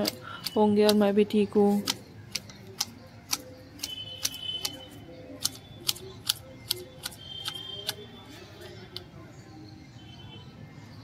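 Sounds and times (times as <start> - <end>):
hedge shears snipping: 0.0 - 8.0.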